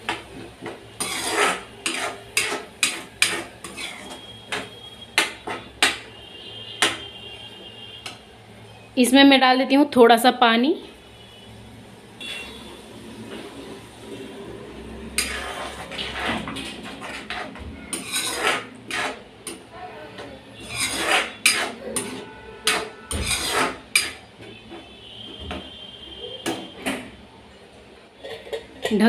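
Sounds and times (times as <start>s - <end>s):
ladle scraping metal pot: 0.0s - 6.1s, 15.1s - 24.5s.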